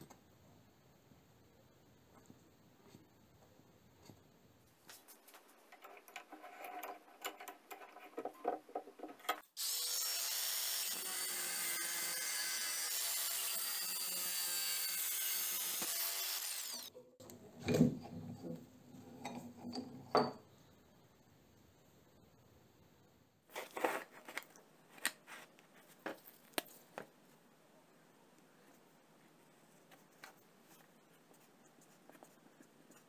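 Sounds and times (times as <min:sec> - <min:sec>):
grinder cutting metal: 0:09.6 - 0:16.9.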